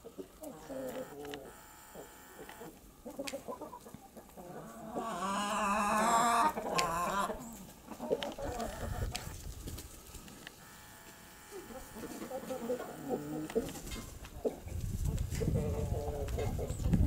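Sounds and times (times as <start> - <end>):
chickens clucking: 0.0 - 17.0
loud wavering chicken call: 4.9 - 7.4.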